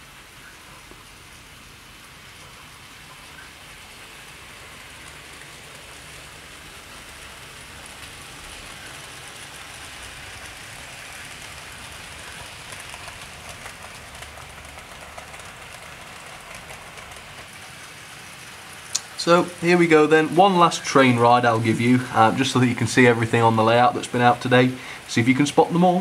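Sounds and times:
model train wheels and motor hiss: 0.0s - 26.0s.

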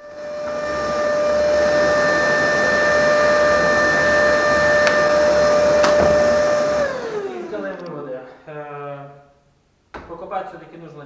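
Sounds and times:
vacuum motor whining: 0.0s - 8.4s.

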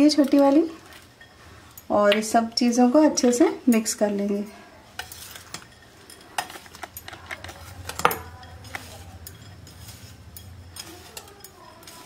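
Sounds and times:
spoon scraping glass bowl: 5.0s - 12.0s.

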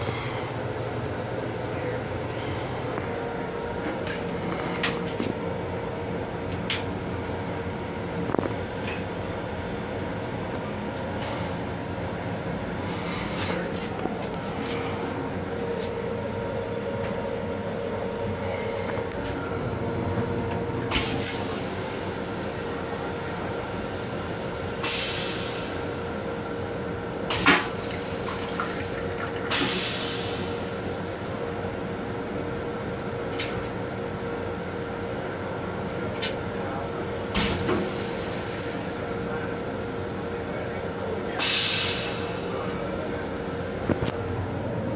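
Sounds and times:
train running noise: 0.0s - 44.9s
toilet flushing: 27.2s - 31.0s.

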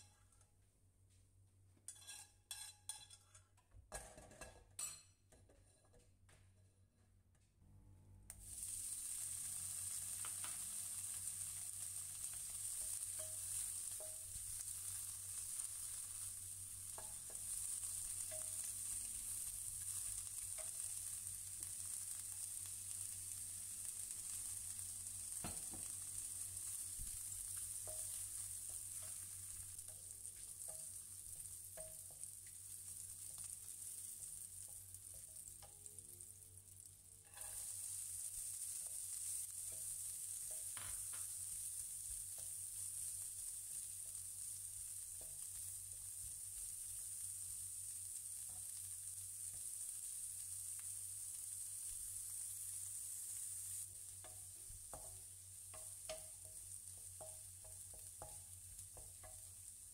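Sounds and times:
food sizzling in hot oil: 1.9s - 3.4s, 8.3s - 59.9s
wooden spatula knocking pan: 12.6s - 14.4s, 25.4s - 26.0s, 27.1s - 32.2s, 54.2s - 59.6s.

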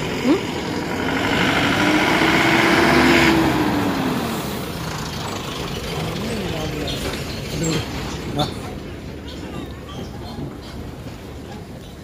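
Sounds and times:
engine running: 0.0s - 9.0s.

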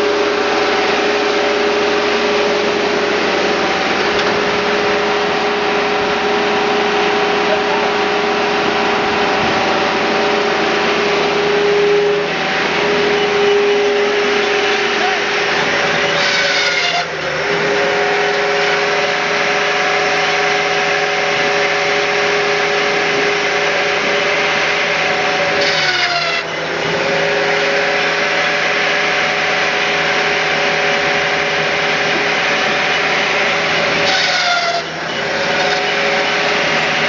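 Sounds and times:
brief high falling whine: 0.0s - 25.6s
firewood processor whining: 0.0s - 37.0s.

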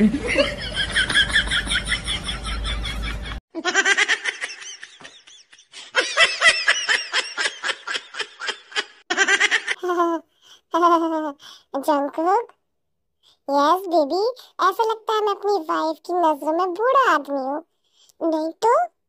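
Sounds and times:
person laughing breathily: 4.6s - 9.0s.

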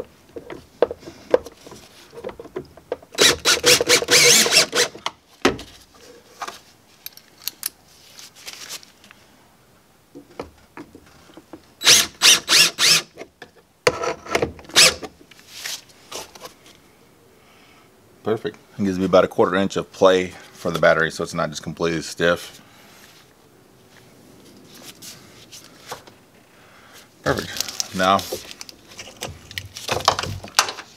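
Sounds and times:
cordless drill driving screws: 3.2s - 5.0s, 11.8s - 13.1s, 14.7s - 15.0s.

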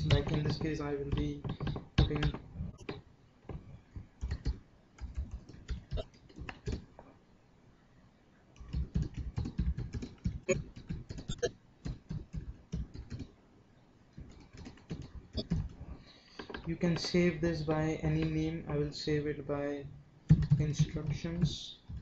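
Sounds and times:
typing on a keyboard: 4.2s - 6.9s, 8.6s - 13.3s, 14.2s - 15.8s, 20.3s - 21.1s.

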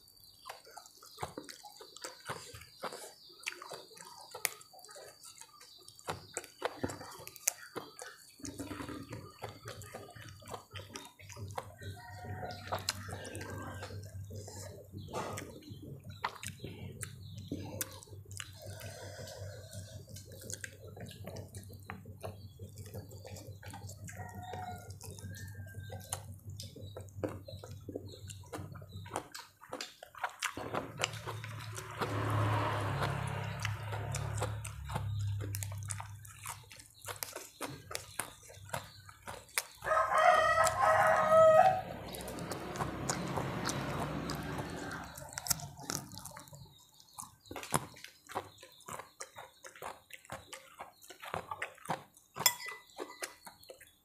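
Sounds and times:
wet chewing and lip smacks: 0.0s - 54.0s
rooster crowing: 39.8s - 45.6s.

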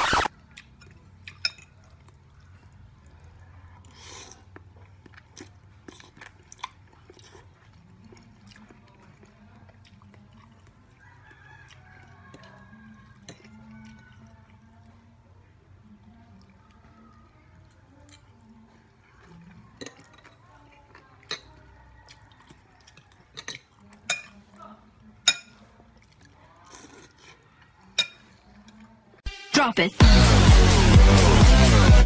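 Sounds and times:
distant rooster crowing: 11.0s - 14.1s
fork clicking on a plate: 19.8s - 21.6s, 23.0s - 24.4s.

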